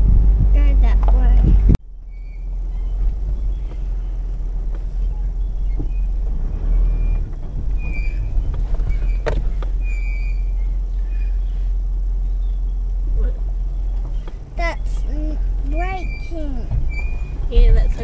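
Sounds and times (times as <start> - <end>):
vehicle driving rumble: 0.0 - 18.0
high-pitched squeaks: 2.0 - 12.6, 15.7 - 18.0.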